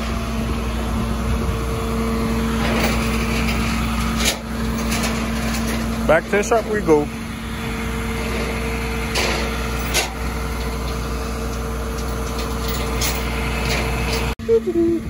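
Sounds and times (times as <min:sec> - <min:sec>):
truck engine and hydraulic pump hum: 0:00.0 - 0:15.0.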